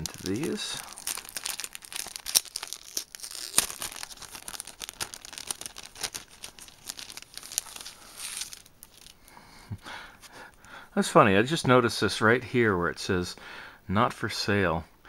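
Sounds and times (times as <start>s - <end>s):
plastic wrapper crinkling and tearing: 0.0s - 9.3s.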